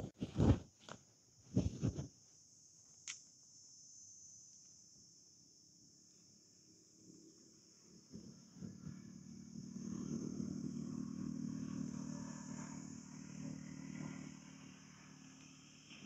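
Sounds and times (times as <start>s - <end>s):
vehicle engine humming: 8.1s - 16.0s.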